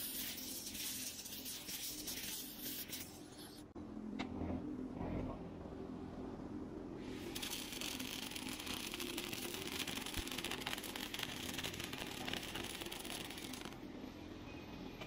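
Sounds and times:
arc welding crackling hiss: 0:07.3 - 0:13.8.

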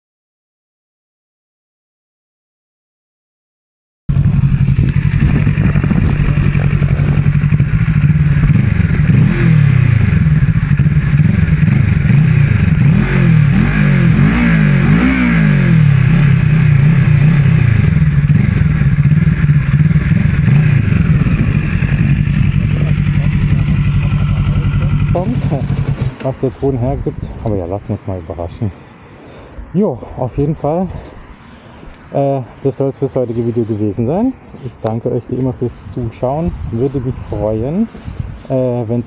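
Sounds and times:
motorcycle engine idling and revving: 0:04.1 - 0:27.8, 0:32.5 - 0:39.0.

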